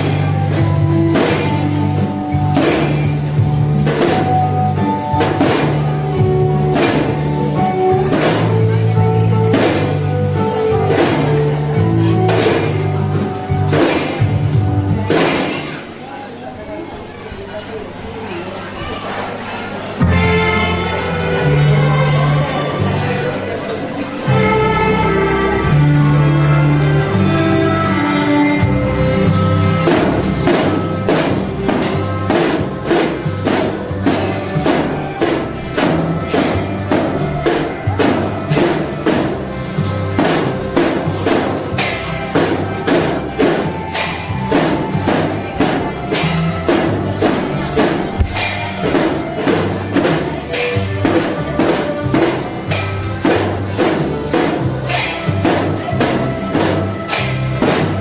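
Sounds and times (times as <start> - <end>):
children's percussion band: 0.0 - 58.0
tambourine-like jingling: 28.9 - 58.0.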